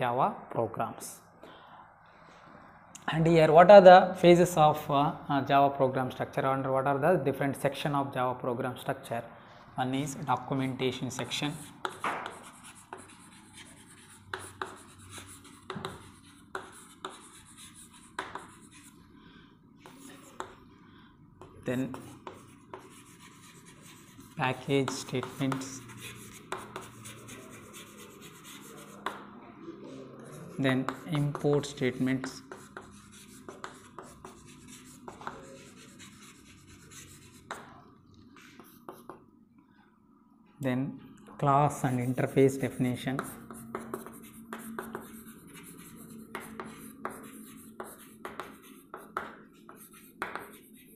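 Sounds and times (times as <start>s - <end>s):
chalk tapping and scratching: 11.0s - 19.0s, 19.8s - 20.6s, 21.4s - 29.3s, 30.5s - 39.2s, 41.7s - 50.9s.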